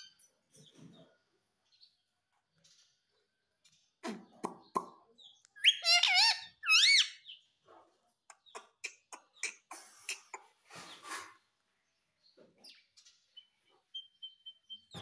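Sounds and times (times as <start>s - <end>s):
parakeet chirping calls: 5.6s - 7.4s.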